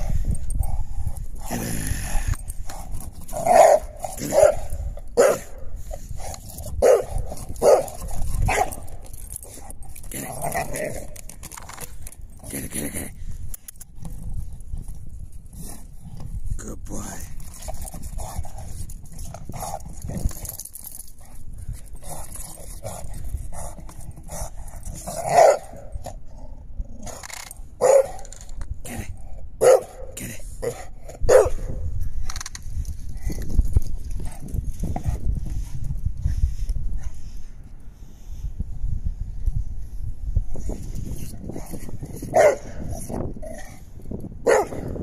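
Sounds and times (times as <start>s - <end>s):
dog barking loudly: 3.5s - 5.5s, 6.8s - 7.9s, 25.3s - 25.8s, 27.8s - 28.2s, 29.6s - 30.0s, 31.3s - 31.6s, 42.3s - 42.8s, 44.4s - 44.9s.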